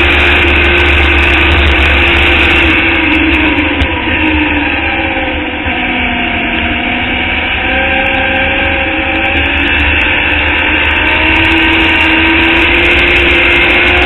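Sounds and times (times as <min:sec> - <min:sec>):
race car engine at high revs: 0:00.0 - 0:14.0.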